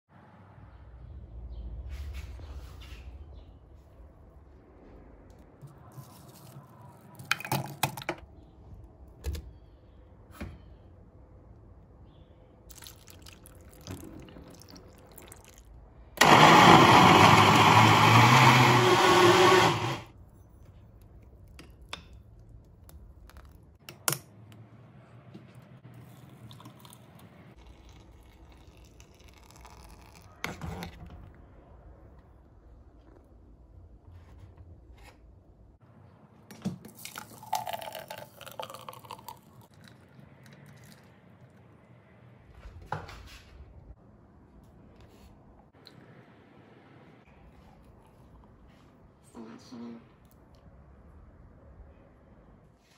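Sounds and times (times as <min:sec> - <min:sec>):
blender running: 0:16.2 - 0:20.1.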